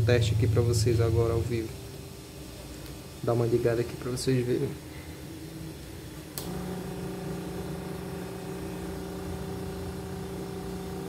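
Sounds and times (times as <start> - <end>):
small electric motor humming: 6.4 - 11.0.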